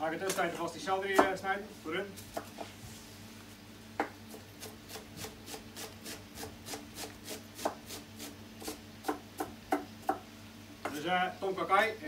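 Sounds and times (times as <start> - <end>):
knife chopping on wooden board: 1.1 - 1.4, 2.3 - 2.7, 4.0 - 10.2.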